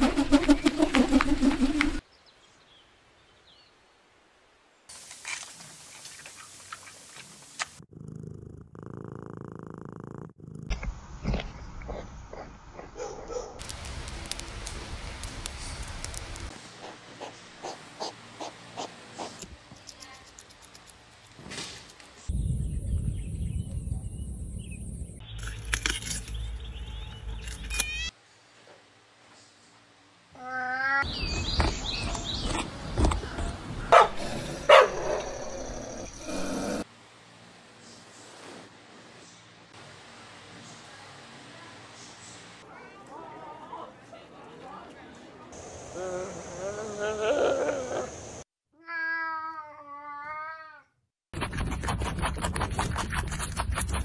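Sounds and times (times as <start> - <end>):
hissy outdoor background: 0.0 - 51.0
cat purring: 7.8 - 12.0
small clicks and snaps: 13.6 - 16.5
low rumble: 22.3 - 25.2
panda chewing bamboo: 51.4 - 54.0.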